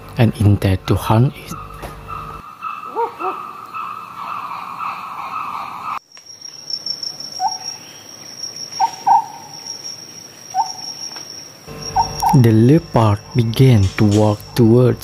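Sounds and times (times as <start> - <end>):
insect chorus: 0.7 - 15.0
high cricket-like trill: 6.0 - 15.0.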